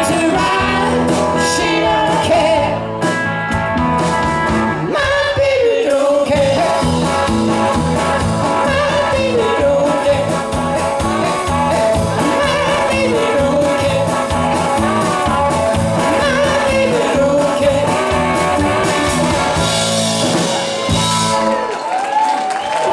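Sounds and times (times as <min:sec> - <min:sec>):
person singing: 0:00.0 - 0:02.9, 0:04.8 - 0:07.3, 0:08.4 - 0:19.3
bass guitar: 0:00.0 - 0:22.9
drums: 0:00.0 - 0:22.9
electric guitar: 0:00.0 - 0:22.9.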